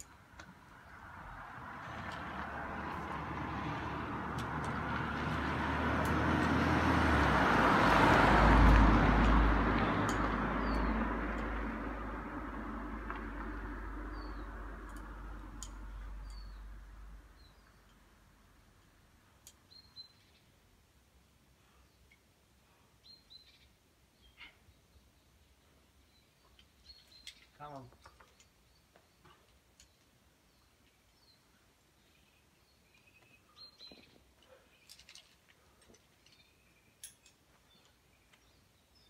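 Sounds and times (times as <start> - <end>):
vehicle passing with rumble: 0.6 - 18.6.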